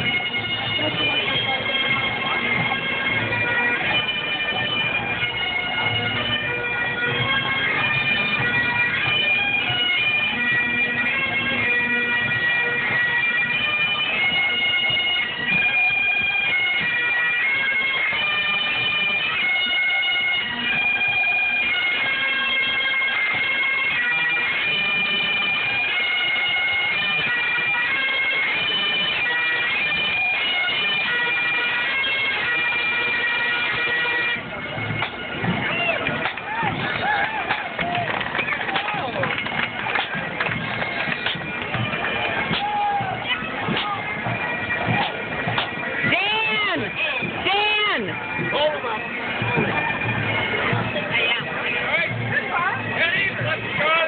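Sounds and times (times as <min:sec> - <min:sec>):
bagpipes playing a tune: 0:00.0 - 0:54.0.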